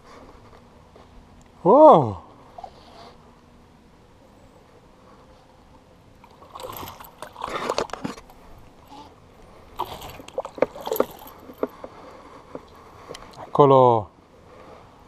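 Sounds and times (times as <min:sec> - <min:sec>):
fish splashing at water surface: 0:06.2 - 0:08.2, 0:09.8 - 0:11.6.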